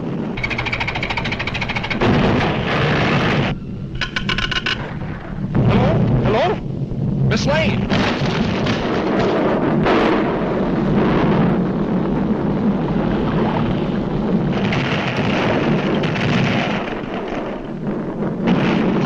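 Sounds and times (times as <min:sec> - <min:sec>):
deep rumbling roar of eruption: 0:00.0 - 0:04.0, 0:04.6 - 0:19.0.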